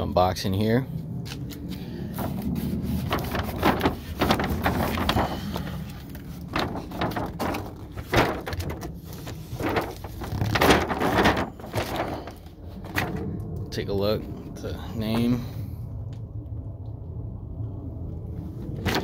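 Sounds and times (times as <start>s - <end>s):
cardboard box scraping and rustling: 2.2s - 13.1s.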